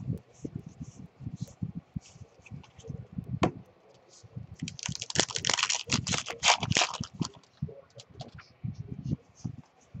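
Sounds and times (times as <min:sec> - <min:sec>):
wrapper tearing and crinkling: 0:04.6 - 0:07.5.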